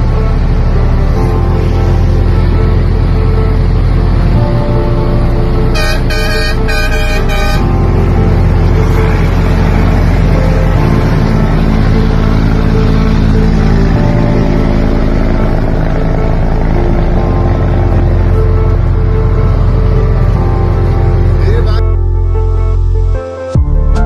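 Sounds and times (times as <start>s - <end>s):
diesel truck engine droning: 0.0s - 24.0s
truck air horn blasts: 5.7s - 8.0s.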